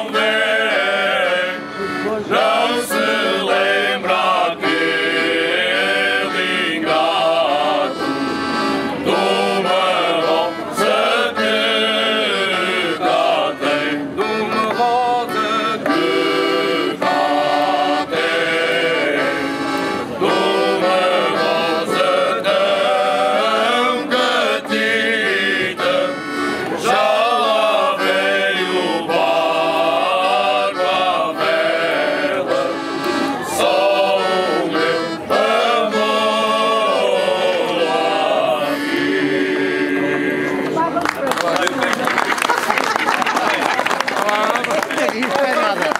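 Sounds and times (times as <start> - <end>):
men singing in chorus: 0.0 - 8.5, 9.1 - 19.6, 20.2 - 32.9, 33.5 - 40.7
accordion: 0.0 - 45.9.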